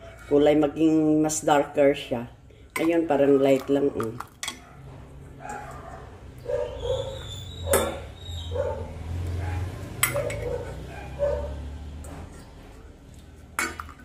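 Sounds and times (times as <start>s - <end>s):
metal ladle clinking on pot: 2.8s - 4.7s, 7.7s - 8.1s, 10.0s - 10.8s, 13.6s - 14.0s
dog yipping: 4.6s - 11.7s.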